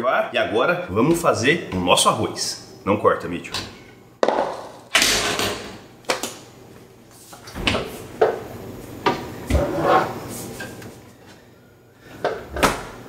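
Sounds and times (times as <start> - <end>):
refrigerator door opening: 12.5 - 13.0.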